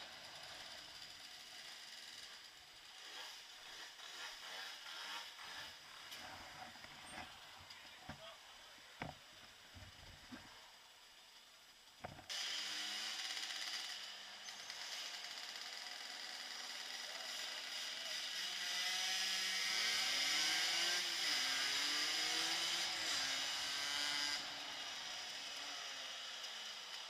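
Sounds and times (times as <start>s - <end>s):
small motorcycle engines buzzing: 0.0s - 10.8s, 11.9s - 27.0s
steady hiss: 0.0s - 17.2s.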